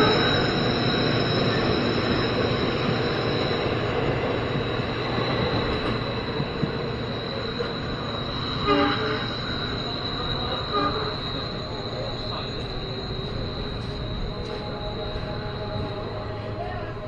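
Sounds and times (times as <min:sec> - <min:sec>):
train rumbling on rails: 0:00.0 - 0:17.0
train horn blasts: 0:08.6 - 0:09.4, 0:10.6 - 0:11.5.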